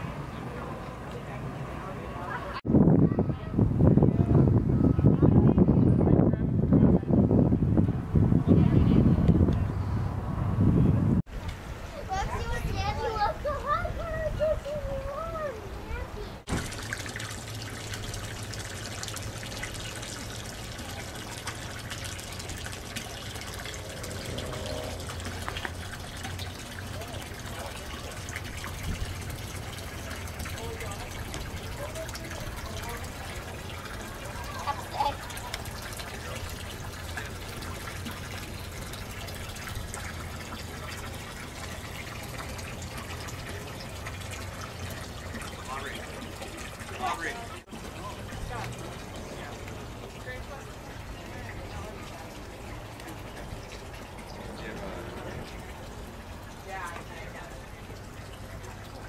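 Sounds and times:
water trickling and lapping: 11.2 - 59.0.

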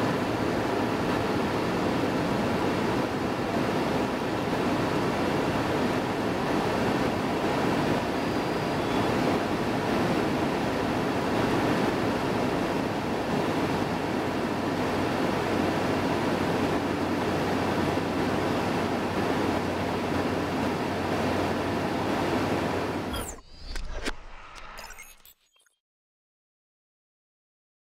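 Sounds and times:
wind rush: 0.0 - 23.1.

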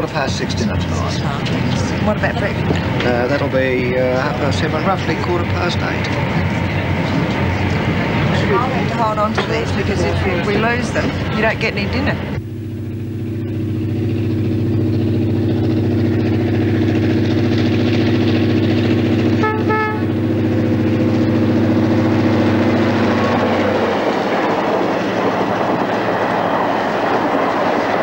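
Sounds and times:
train wheels clattering on rails: 0.0 - 12.4, 21.4 - 28.0
diesel locomotive engine drone: 0.0 - 28.0
short train horn toot: 19.4 - 20.2.

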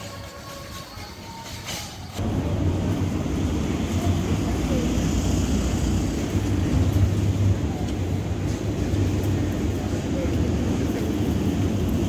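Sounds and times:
low rumble of car park: 2.2 - 12.0.

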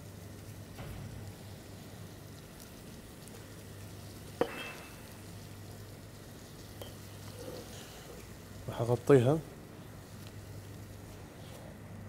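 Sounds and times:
low electrical hum: 0.0 - 12.0
utensil clinking on hard surface: 4.4 - 5.1.

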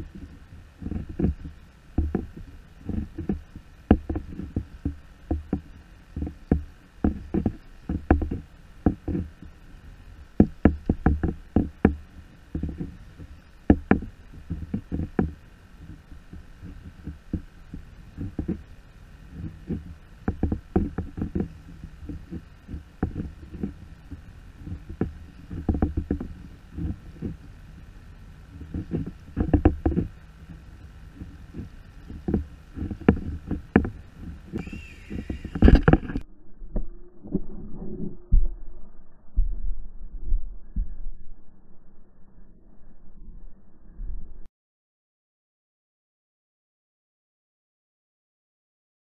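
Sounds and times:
waves knocking on kayak hull: 0.0 - 9.6, 10.4 - 18.7, 19.3 - 27.6, 28.5 - 36.2.

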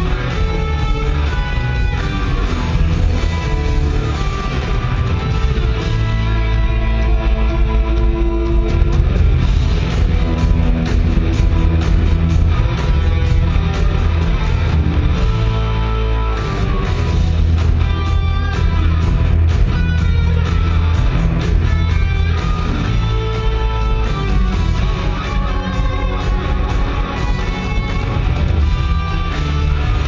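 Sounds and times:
drums: 0.0 - 30.0
electric guitar: 0.0 - 30.0
live rock band: 0.0 - 30.0.

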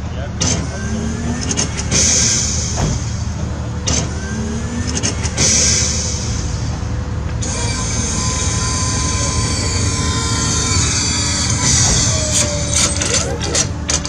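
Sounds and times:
toy robot actuators whining: 7.4 - 14.0.

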